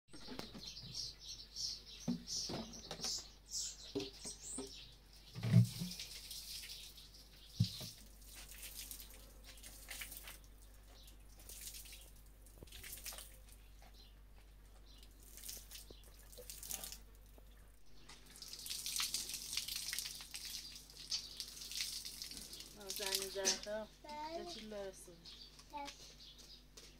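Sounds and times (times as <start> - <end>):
water splashing on concrete: 5.4 - 13.6, 15.0 - 17.4, 18.2 - 23.7
broom sweeping wet ground: 7.6 - 13.6.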